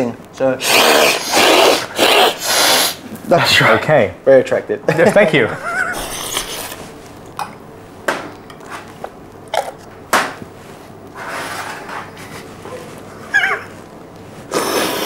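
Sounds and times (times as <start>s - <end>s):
coffee slurping: 0.6s - 3.0s, 14.5s - 15.0s.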